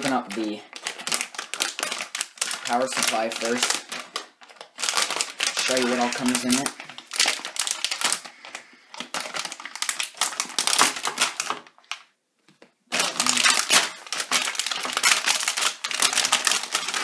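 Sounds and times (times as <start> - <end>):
foil crinkling: 0.0 - 12.1, 12.9 - 17.0.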